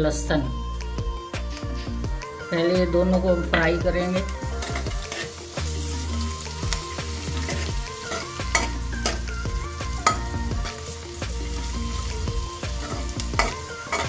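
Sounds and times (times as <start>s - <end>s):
sizzling in hot oil: 0.8s - 14.0s
metal ladle scraping a pan: 3.0s - 9.4s, 10.0s - 14.0s.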